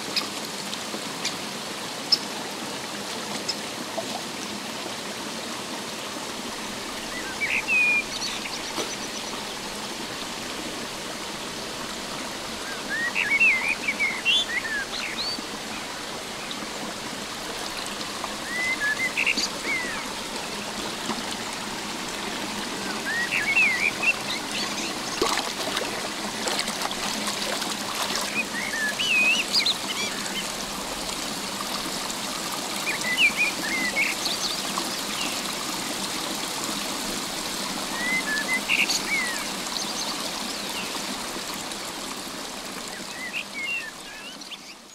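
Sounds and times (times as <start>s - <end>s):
stream running over rocks: 0.0s - 44.9s
songbird singing: 7.0s - 9.7s, 12.6s - 16.7s, 17.9s - 21.5s, 22.4s - 25.4s, 28.1s - 30.6s, 32.8s - 35.4s, 37.9s - 41.0s, 42.9s - 44.9s.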